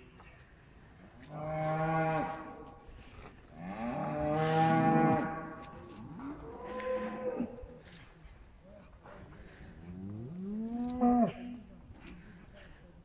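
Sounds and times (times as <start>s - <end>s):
cattle mooing: 3.6s - 5.6s.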